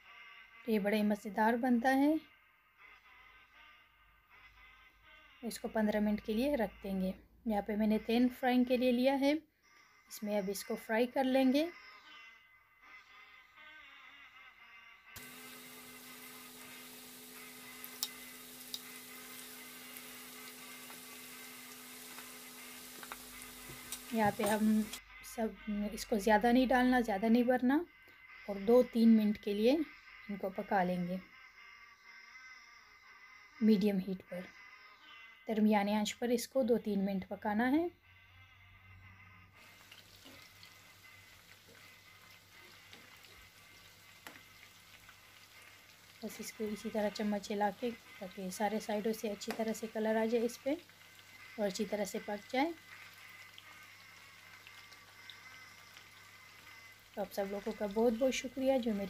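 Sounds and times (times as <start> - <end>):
chicken deep-frying in oil: 15.2 - 25.0, 39.6 - 59.0
oil popping: 15.2 - 25.0, 39.6 - 58.1.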